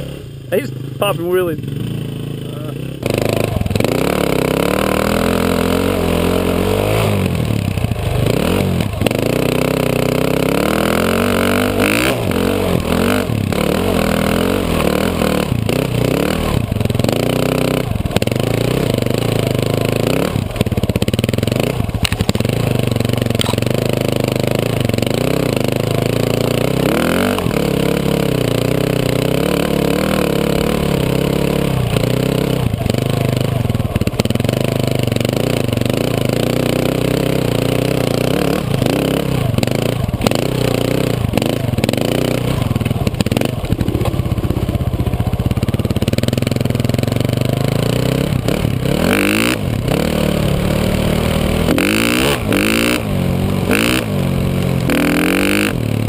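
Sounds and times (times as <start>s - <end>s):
dirt bike engine revving: 0.0s - 56.0s
bike knocks and clatter: 22.0s - 22.5s.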